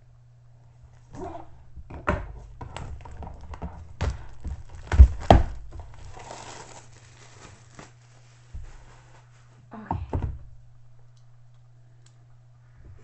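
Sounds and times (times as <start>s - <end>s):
plastic wrap crinkling: 3.0s - 9.5s.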